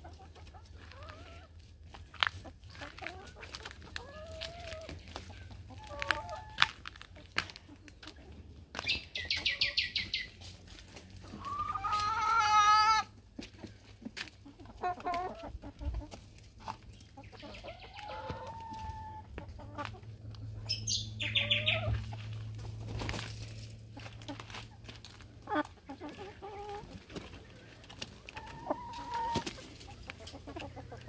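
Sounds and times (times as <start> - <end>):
hens clucking: 0.0 - 31.0.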